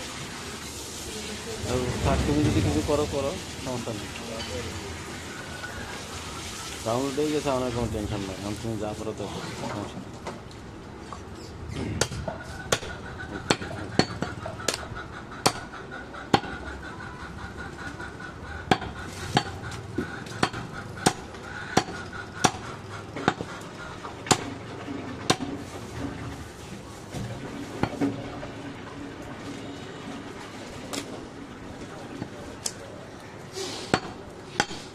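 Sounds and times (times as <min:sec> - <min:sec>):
knife chopping on wooden block: 0:20.3 - 0:21.2.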